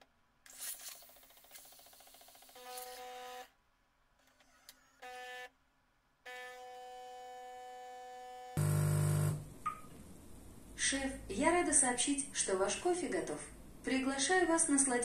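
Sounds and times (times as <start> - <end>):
espresso machine pump buzzing: 6.4 - 9.5.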